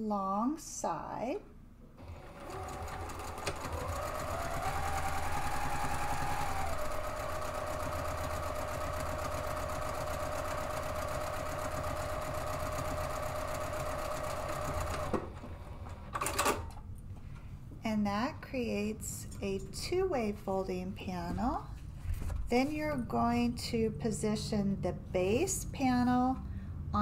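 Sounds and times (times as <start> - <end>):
sewing machine motor whine: 2.0 - 16.0.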